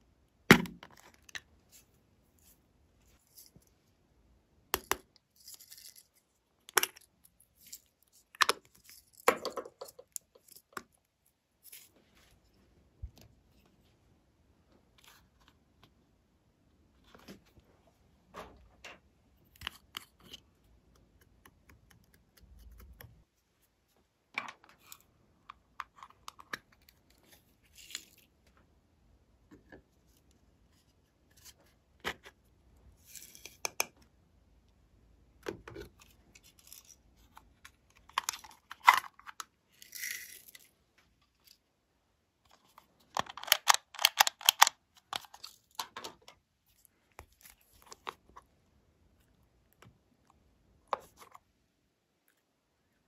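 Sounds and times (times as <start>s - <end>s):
plastic caps clicking and tapping: 33.5s - 34.0s, 43.2s - 46.1s.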